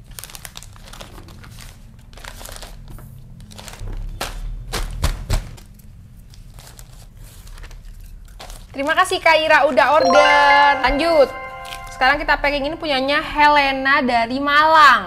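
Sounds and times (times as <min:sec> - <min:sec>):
plastic packaging crinkling: 0:00.1 - 0:00.7.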